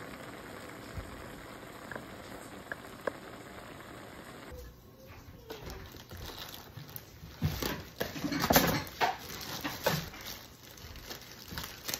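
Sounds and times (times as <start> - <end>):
plastic bag crinkling: 5.5 - 11.9.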